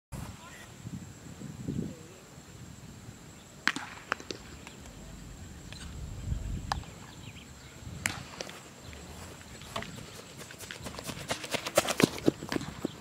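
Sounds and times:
wind rumble: 4.0s - 10.2s
footsteps running on grass: 9.0s - 13.0s.

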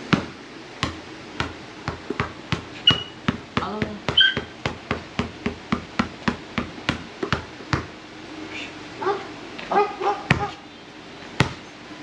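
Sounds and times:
basketball dribbling on pavement: 0.0s - 8.0s, 10.2s - 10.6s, 11.4s - 11.6s.

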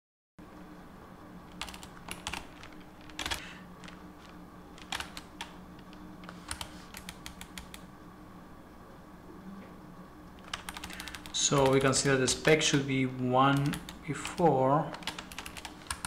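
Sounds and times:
faint low hum: 0.4s - 16.0s
computer keyboard keys clicking: 1.5s - 4.0s, 4.8s - 7.8s, 10.4s - 12.8s, 13.5s - 16.0s.

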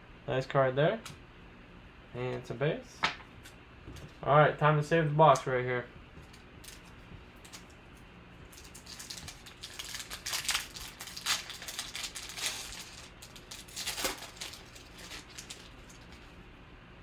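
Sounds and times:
foil wrapper crinkling and tearing: 8.4s - 16.4s.

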